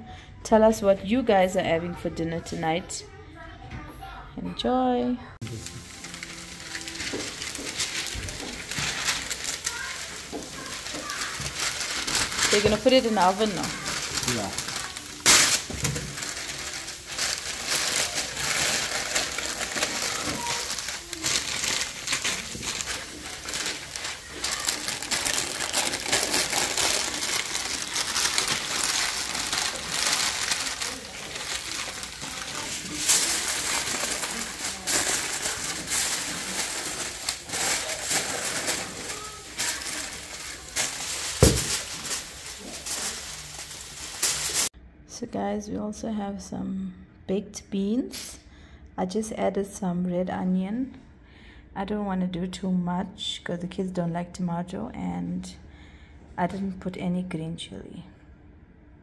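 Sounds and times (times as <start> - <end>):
foil crinkling and crackling: 5.4 - 44.7.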